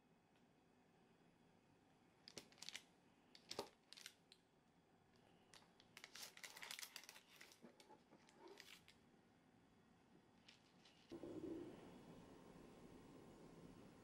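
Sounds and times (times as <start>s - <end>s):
paper crackling: 6.0s - 9.0s.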